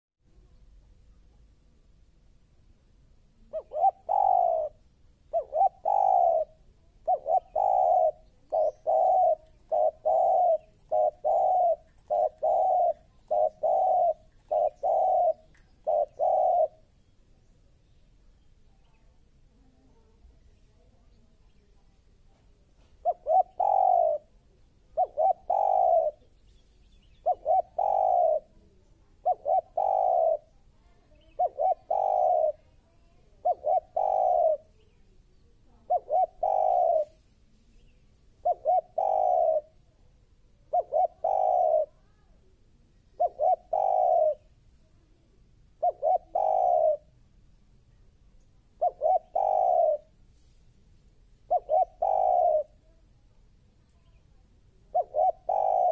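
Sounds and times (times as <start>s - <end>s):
dove cooing: 3.4s - 16.9s, 22.3s - 26.4s, 27.2s - 34.9s, 35.7s - 37.3s, 38.4s - 39.9s, 40.5s - 42.2s, 43.0s - 44.6s, 45.7s - 47.1s, 48.7s - 50.2s, 51.4s - 53.0s, 54.8s - 55.9s.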